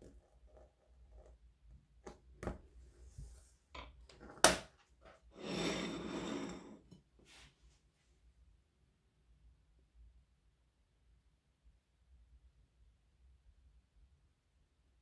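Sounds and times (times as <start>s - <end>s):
rustling scrape: 5.3s - 7.8s.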